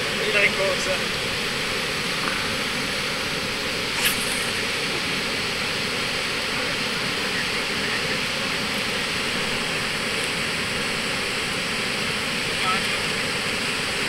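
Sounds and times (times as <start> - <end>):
river water pouring over weir: 0.0 - 14.0
sharp click: 4.0 - 4.6.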